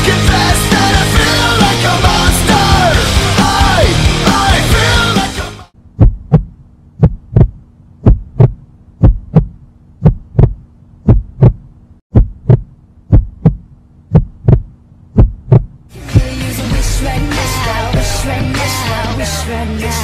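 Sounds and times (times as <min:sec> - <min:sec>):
heartbeat thumps: 0:05.9 - 0:16.4.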